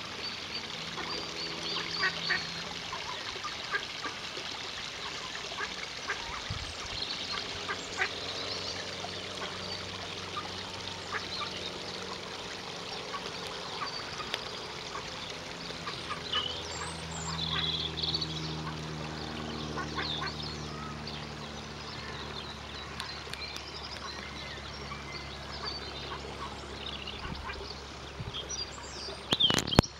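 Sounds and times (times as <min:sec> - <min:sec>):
ducks calling: 0:13.0 - 0:21.0.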